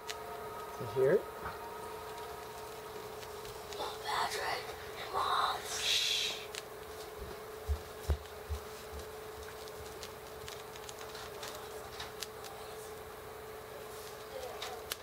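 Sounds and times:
steady hum: 0.0 - 15.0
moth scratching out of cocoon: 1.8 - 7.0, 8.9 - 12.7.

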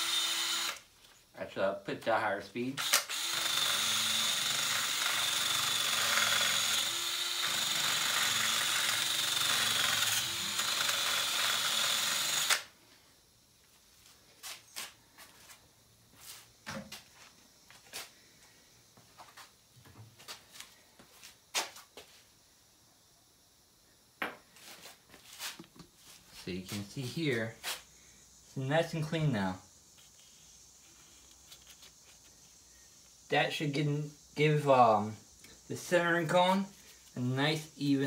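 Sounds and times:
cordless drill whining: 0.0 - 0.8, 2.8 - 12.7
brush scuffing metal: 13.7 - 18.2, 24.5 - 27.9.

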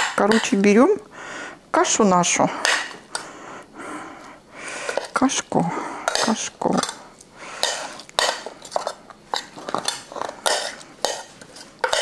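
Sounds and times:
utensil scraping and knocking dish: 7.6 - 12.0.

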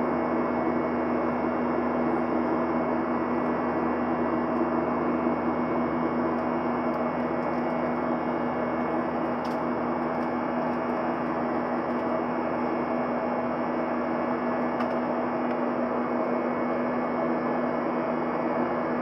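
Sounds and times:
constant low hum: 0.0 - 19.0
jet engines droning: 0.0 - 19.0.

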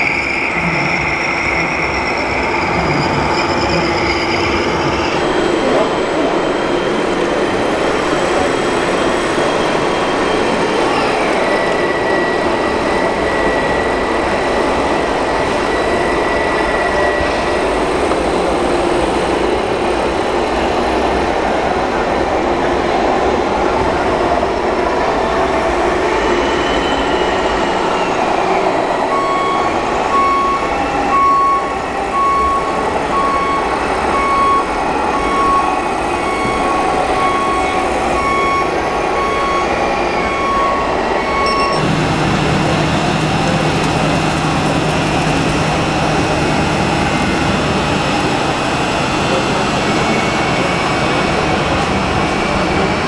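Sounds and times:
short electronic beeps: 41.3 - 42.1.

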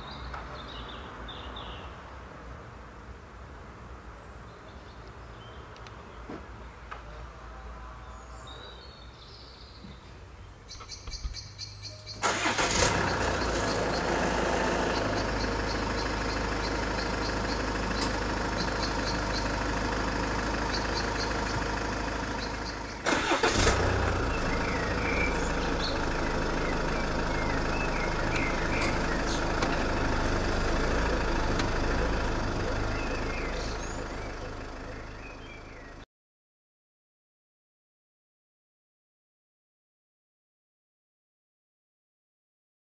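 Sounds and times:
diesel engine starting: 12.1 - 36.0
diesel engine idling: 12.2 - 36.0.

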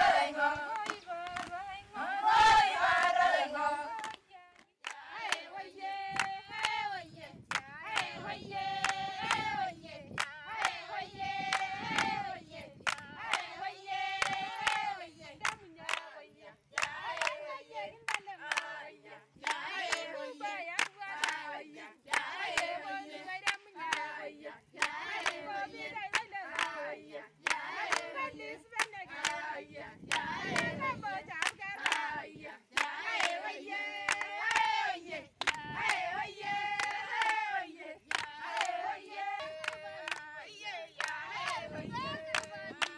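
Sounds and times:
women singing together: 0.0 - 42.9
handclaps: 0.7 - 1.6, 4.0 - 5.5, 6.1 - 6.8, 7.5 - 8.2, 8.8 - 9.6, 10.2 - 10.8, 11.5 - 12.2, 12.9 - 13.5, 14.2 - 16.1, 16.8 - 17.4, 18.1 - 18.7, 19.4 - 21.5, 22.1 - 22.8, 23.4 - 24.1, 24.8 - 26.8, 27.4 - 28.1, 28.8 - 29.4, 30.1 - 32.1, 32.8 - 33.4, 34.0 - 34.8, 35.4 - 37.4, 38.1 - 40.3, 41.0 - 42.9.

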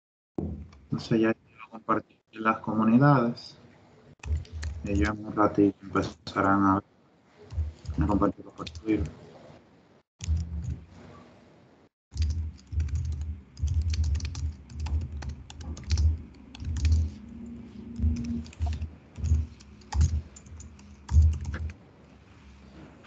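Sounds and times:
typing on computer keyboard: 4.2 - 5.2, 7.5 - 9.1, 10.2 - 10.8, 12.1 - 21.8.

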